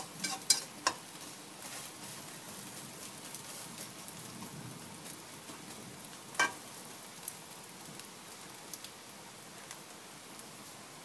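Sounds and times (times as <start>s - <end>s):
spatula clinking against pan: 0.0s - 1.0s, 6.4s - 6.6s
egg sizzling in frying pan: 0.0s - 9.0s.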